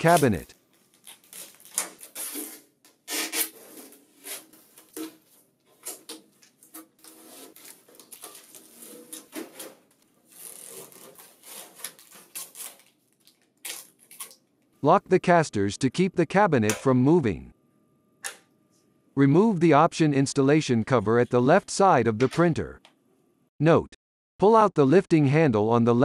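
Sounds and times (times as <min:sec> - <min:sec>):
packing tape peeling off panels: 0:00.1 - 0:14.4.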